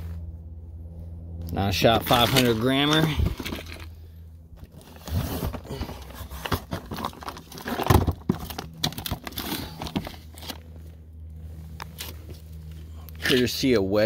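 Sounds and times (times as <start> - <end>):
cardboard boxes rustling and knocking: 4.6 - 10.6.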